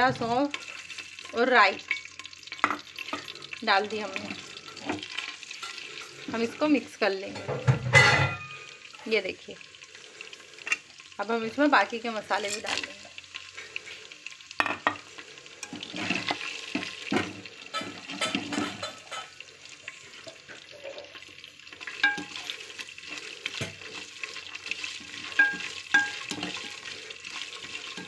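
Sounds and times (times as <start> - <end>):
spices sizzling in hot oil: 0.0 - 28.0
spoon clinking against pot: 22.0 - 22.4, 25.2 - 26.8.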